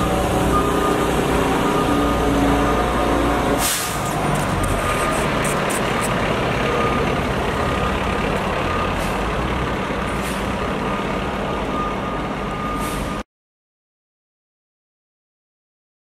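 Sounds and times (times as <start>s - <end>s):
diesel engine running: 0.0s - 13.2s
backup alarm beeping: 0.4s - 3.3s, 4.4s - 5.5s, 11.5s - 13.2s.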